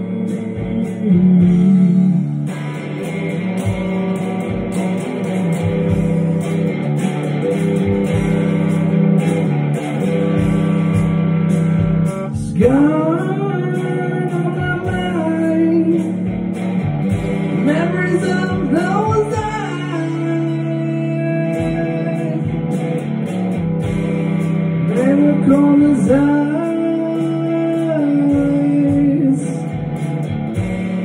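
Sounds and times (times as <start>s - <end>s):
man singing: 0.0s - 3.0s, 12.1s - 16.4s, 17.4s - 23.0s, 24.9s - 30.0s
electric guitar playing: 0.0s - 31.0s.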